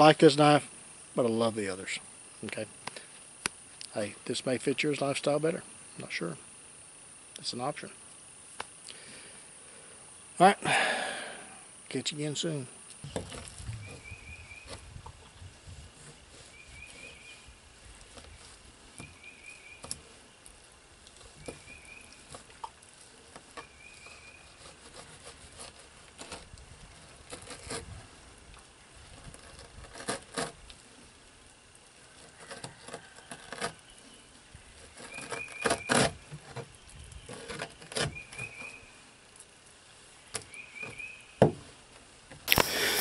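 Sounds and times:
knocks on wooden board: 41.4 - 41.6.

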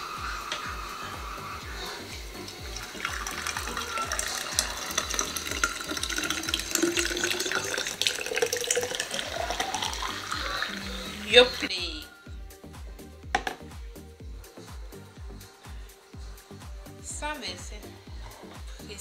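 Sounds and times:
juice pouring into a glass carafe: 2.4 - 11.3.

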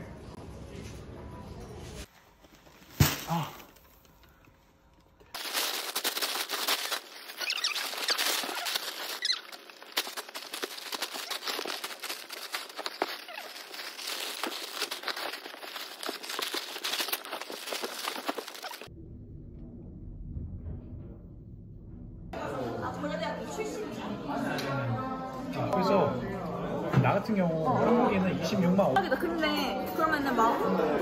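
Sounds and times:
plastic bags rustling: 5.3 - 18.9.

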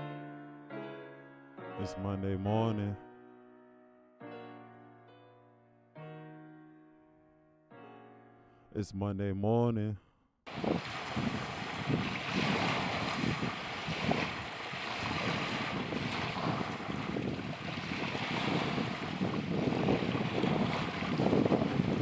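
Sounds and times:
small waves breaking on shore: 10.5 - 22.0
wind noise on microphone: 10.5 - 22.0.

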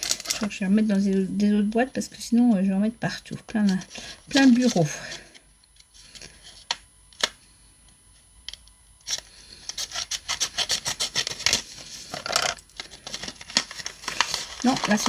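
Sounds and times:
paper packets rustling: 0.0 - 1.2, 3.6 - 6.6, 9.1 - 15.0.

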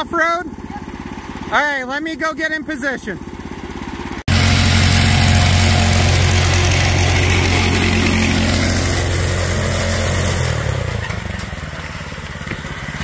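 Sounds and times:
go-kart engine revving high: 3.2 - 13.0.

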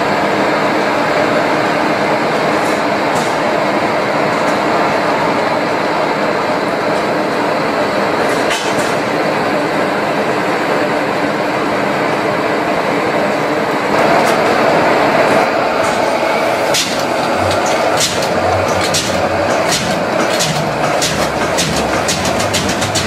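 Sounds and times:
old stationary engine running: 15.8 - 23.0.

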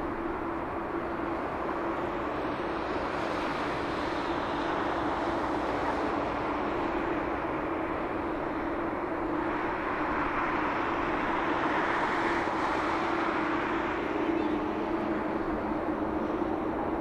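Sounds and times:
jet engines running at low thrust: 0.0 - 17.0.

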